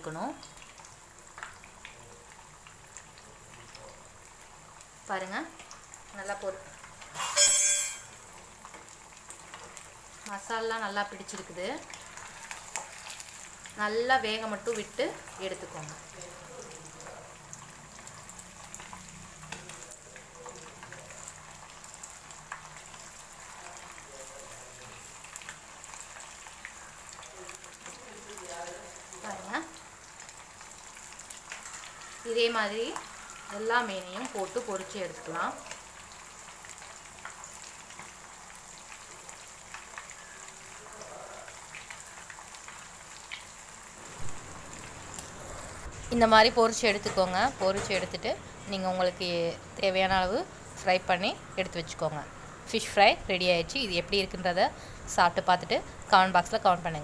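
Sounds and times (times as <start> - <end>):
fish frying in hot oil: 0.0 - 57.0.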